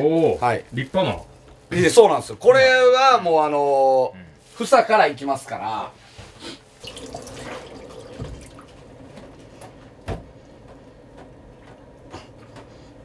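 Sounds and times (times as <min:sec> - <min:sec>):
tap water running into sink: 0:06.8 - 0:09.7.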